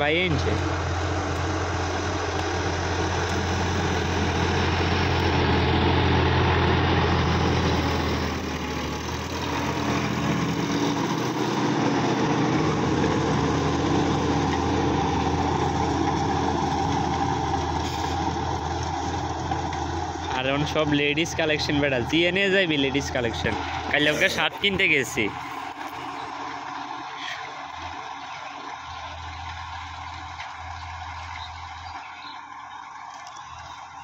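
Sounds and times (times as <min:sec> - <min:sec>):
tractor diesel engine running: 0:00.0 - 0:34.0.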